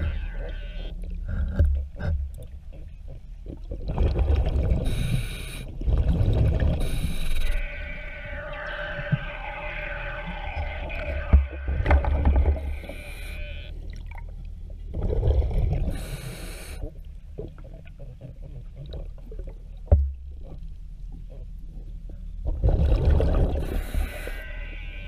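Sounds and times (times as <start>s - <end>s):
exhaled bubbles rumbling: 0.0s - 13.1s, 13.8s - 21.8s, 22.4s - 24.5s
diver breathing through regulator: 4.8s - 5.7s, 6.8s - 7.7s, 15.8s - 16.9s, 23.6s - 24.5s.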